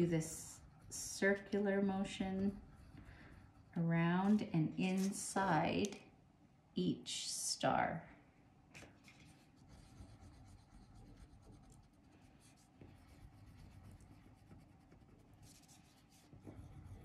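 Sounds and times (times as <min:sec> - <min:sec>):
crayon scratching on paper: 0:00.0 - 0:05.3, 0:09.3 - 0:17.0.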